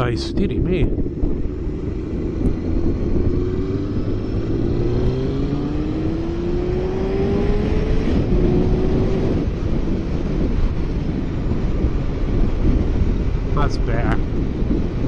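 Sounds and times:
motorcycle engine accelerating: 0.0 - 15.0
wind and road noise: 0.0 - 15.0.

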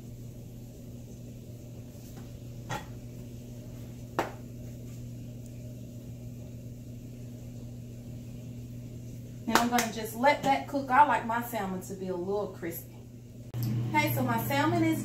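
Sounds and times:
low hum: 0.0 - 10.2.

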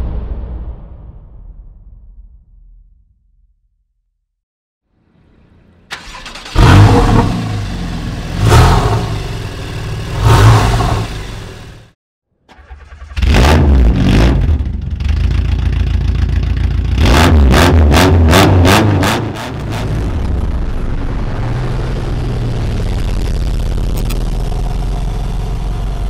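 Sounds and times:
car engine running loud: 5.9 - 12.0, 12.6 - 26.0
car engine revving: 5.9 - 26.0.

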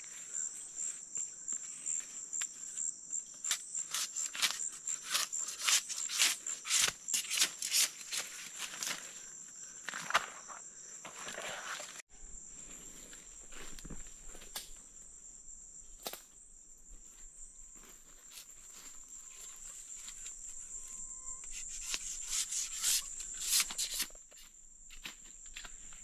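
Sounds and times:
high-pitched insect chorus: 0.0 - 26.0
palm stems cut and stripped: 3.4 - 9.2, 21.4 - 26.0.

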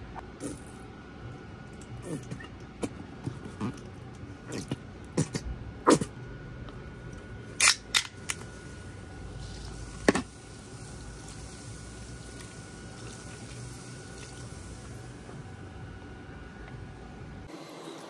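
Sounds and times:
soda pouring and splashing: 9.4 - 14.9.

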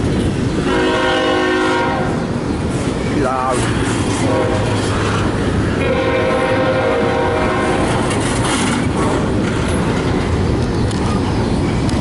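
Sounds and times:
train wheels running over rails: 0.0 - 12.0
train horn: 0.6 - 2.2, 4.2 - 4.9, 5.8 - 8.0.

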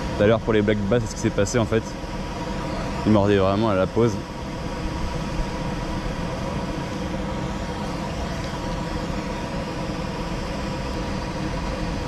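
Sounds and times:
low rumble and hum: 0.0 - 12.0.

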